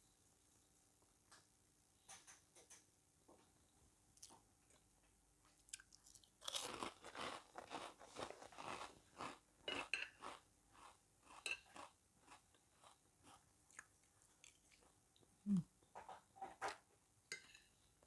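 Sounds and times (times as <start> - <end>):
chewing crunchy fried food: 5.6 - 15.3.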